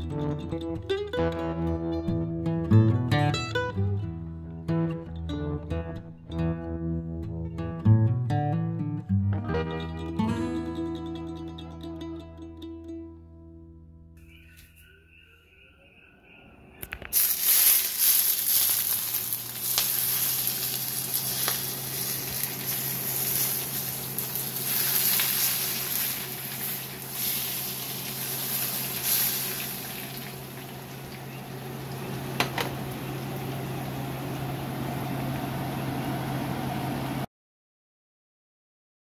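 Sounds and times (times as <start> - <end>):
hot oil sizzling: 17.1 - 35.7
steady low hum: 18.8 - 37.3.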